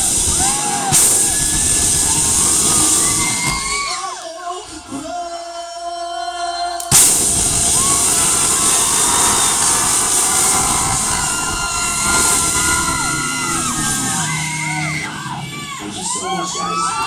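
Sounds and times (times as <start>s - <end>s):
drums and cymbals crashing: 0.0s - 4.1s, 6.9s - 15.3s
crowd screaming: 0.0s - 4.5s, 6.8s - 17.0s.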